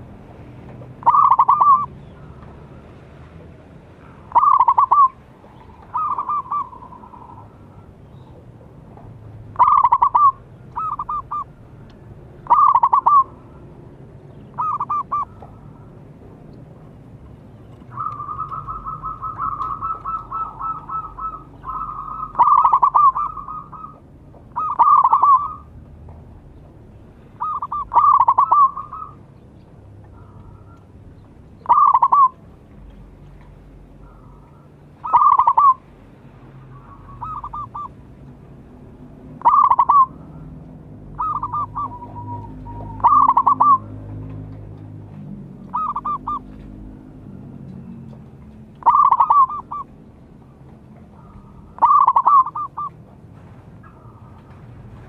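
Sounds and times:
dove cooing: 1.0s - 2.4s, 4.0s - 8.5s, 9.6s - 11.6s, 12.4s - 13.5s, 14.5s - 15.9s, 17.9s - 25.7s, 27.4s - 29.2s, 31.6s - 32.4s, 34.0s - 35.8s, 36.7s - 38.0s, 39.4s - 40.5s, 41.1s - 44.0s, 45.7s - 46.7s, 48.8s - 49.9s, 51.1s - 53.0s.

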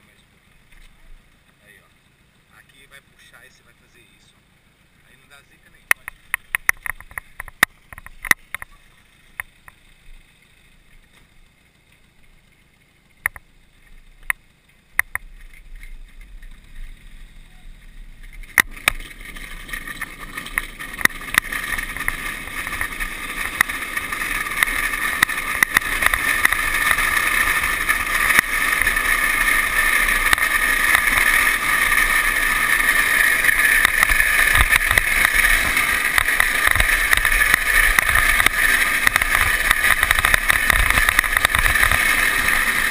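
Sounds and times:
plastic wheels rasping on road: 5.6s - 42.9s
clicks: 5.8s - 9.8s.

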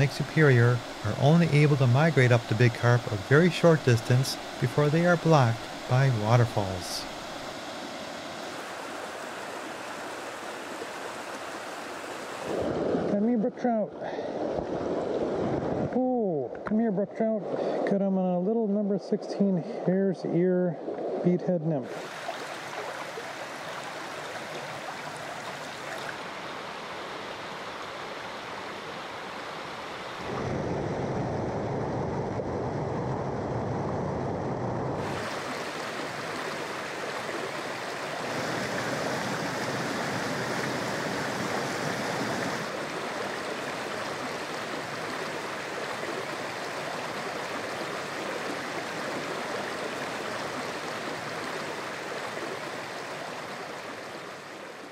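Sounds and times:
stream rushing over rocks: 0.0s - 13.3s, 21.8s - 30.4s, 35.0s - 54.9s.

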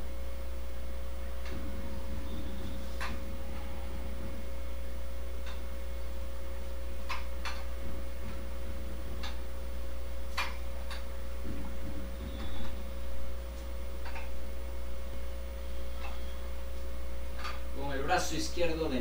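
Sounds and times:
steady low hum: 0.0s - 19.0s
faint steady high tone: 1.0s - 6.2s, 11.4s - 14.3s.

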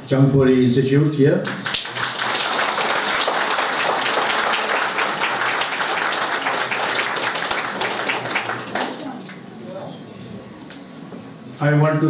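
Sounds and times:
audience applauding: 1.4s - 9.6s.

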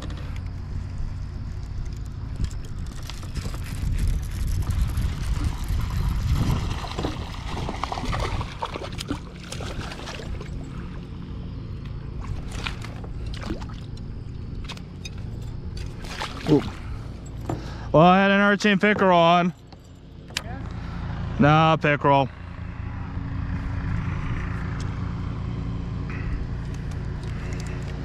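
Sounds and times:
steady low rumble: 0.0s - 28.0s
fish splashing in water: 4.2s - 11.0s, 12.1s - 14.0s, 15.8s - 17.1s.

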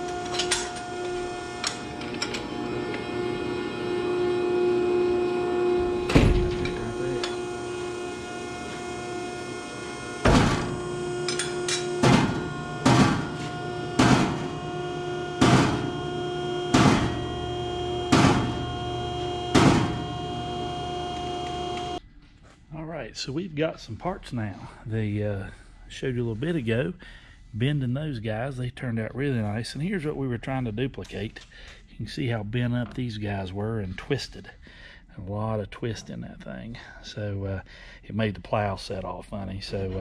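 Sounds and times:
steady hum: 0.0s - 22.0s
hammer striking steel: 10.2s - 14.7s, 15.3s - 16.0s, 16.7s - 20.2s.

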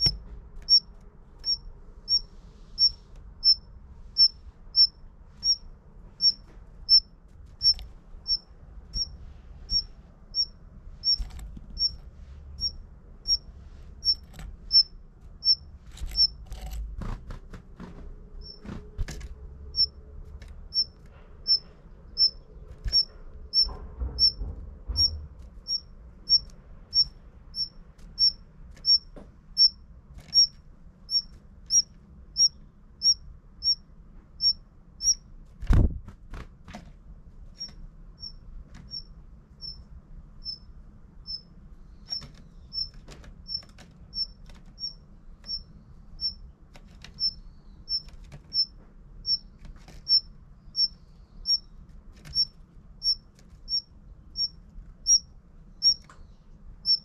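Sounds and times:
faint knocks: 22.8s - 25.6s.

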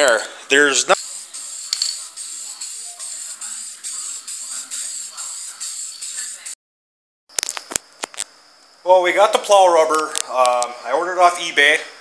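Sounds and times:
spray paint can hissing: 1.0s - 6.6s.

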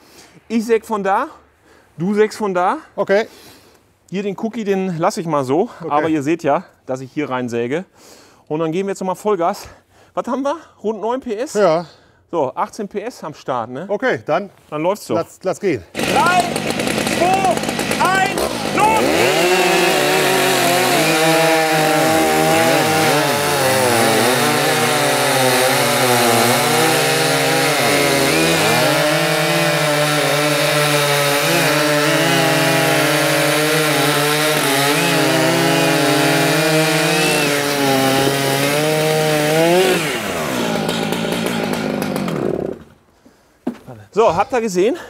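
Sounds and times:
chainsaws cutting a log: 15.9s - 43.0s.

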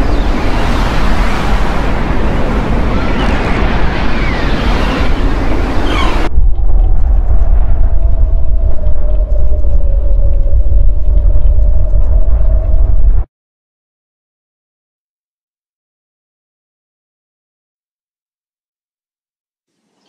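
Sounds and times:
deep rumble: 0.0s - 13.3s.

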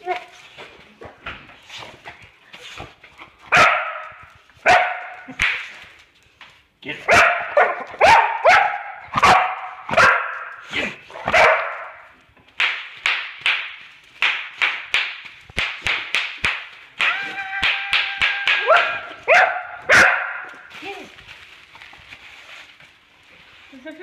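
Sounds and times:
dog barking: 3.5s - 5.3s, 7.0s - 12.0s, 18.7s - 20.6s.

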